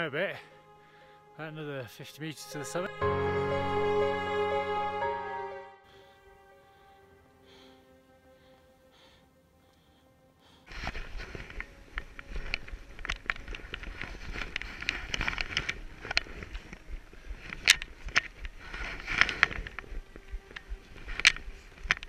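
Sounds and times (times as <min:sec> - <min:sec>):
wind rumbling on microphone: 0:11.0 - 0:22.0.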